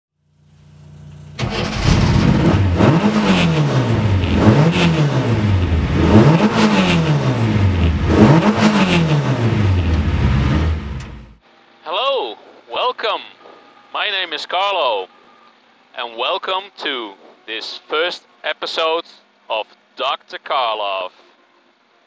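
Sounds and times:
rally car engine revving: 0:00.8 - 0:11.4.

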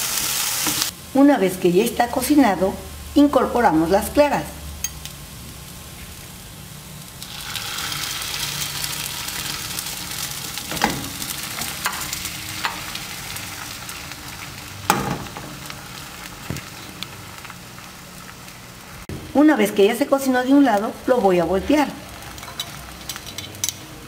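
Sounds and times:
egg whites sizzling in frying pan: 0:00.0 - 0:01.0, 0:05.4 - 0:19.1, 0:21.7 - 0:24.0.

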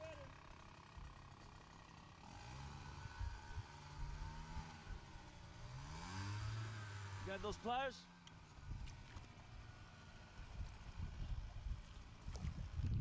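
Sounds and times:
faint engine running: 0:00.0 - 0:13.0.

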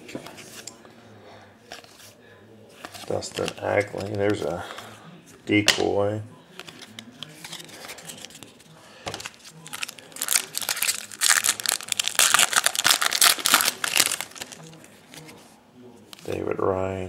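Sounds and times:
foil wrapper tearing and crinkling: 0:09.2 - 0:14.7.

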